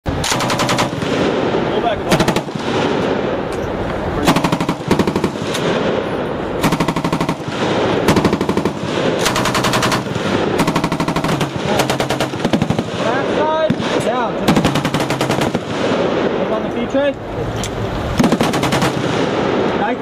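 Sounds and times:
continuous rumble: 0.1s - 20.0s
machine gun bursts: 0.2s - 1.1s, 4.2s - 5.6s, 6.6s - 13.2s, 14.4s - 15.7s, 18.2s - 19.2s.

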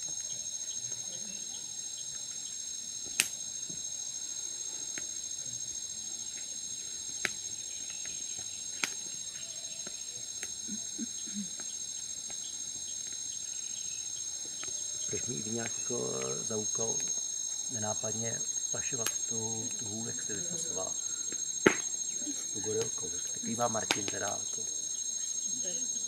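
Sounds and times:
insects chirring: 0.0s - 26.0s
campfire popping: 3.0s - 3.8s, 6.2s - 24.9s.

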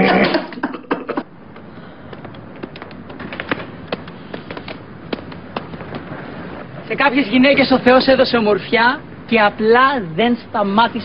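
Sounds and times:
outdoor background noise: 0.0s - 11.0s
sharp pops and crackles: 1.5s - 6.2s.

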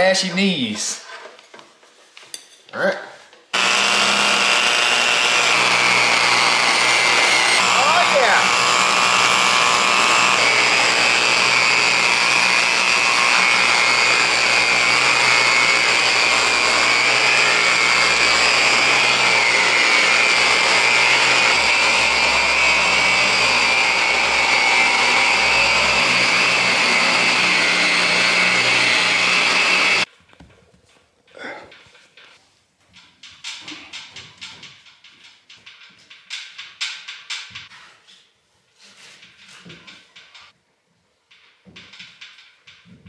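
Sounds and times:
electric buffer motor whine: 3.6s - 30.1s.

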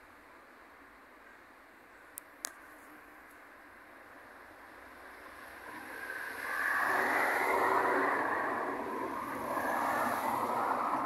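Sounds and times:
car tyres hissing past: 4.7s - 11.0s.

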